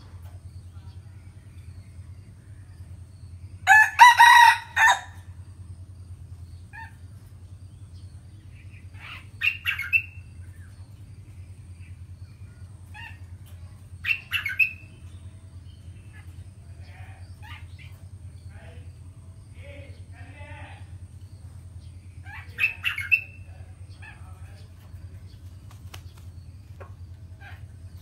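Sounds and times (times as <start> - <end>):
rooster crowing: 3.6 - 5.3.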